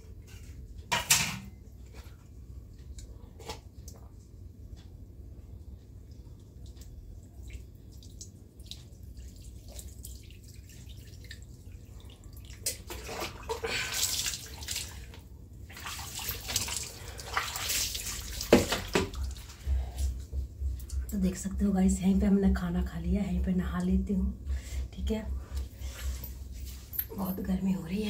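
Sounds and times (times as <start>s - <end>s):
water running and splashing: 7.5s - 19.7s
low hum: 18.0s - 28.0s.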